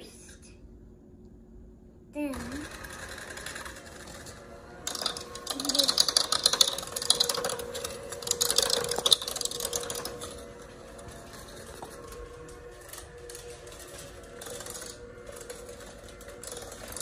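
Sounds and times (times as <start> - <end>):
electric hand mixer running: 2.3 - 17.0
beaters rattling in bowl: 2.6 - 17.0.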